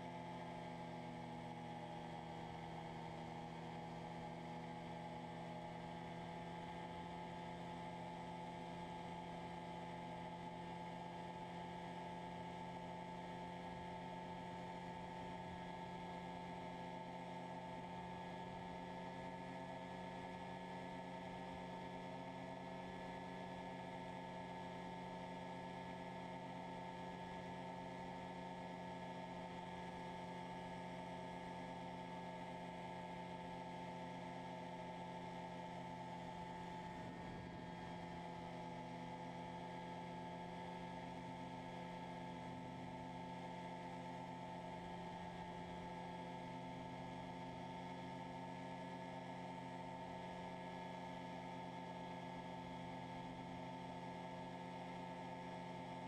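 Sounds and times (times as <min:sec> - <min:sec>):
ultralight aircraft engine humming: 0:31.8 - 0:47.6.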